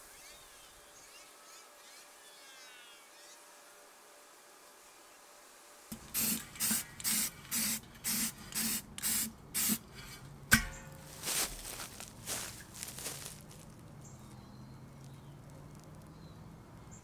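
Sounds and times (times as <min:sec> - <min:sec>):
spray-paint can hissing: 0:05.9 - 0:09.9
sharp thump: 0:10.5 - 0:11.7.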